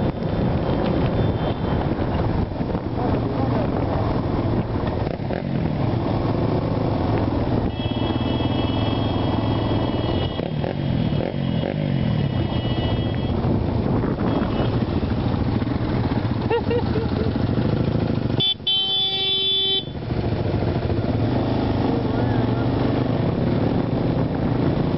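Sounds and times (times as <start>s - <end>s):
off-road engines revving: 20.1s - 24.9s.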